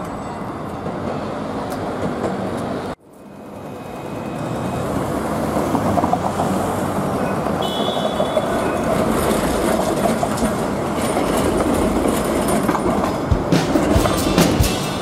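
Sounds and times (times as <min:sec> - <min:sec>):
tram wheels rumbling on track: 0:00.0 - 0:15.0
high wheel squeal: 0:03.2 - 0:05.7, 0:06.8 - 0:10.0.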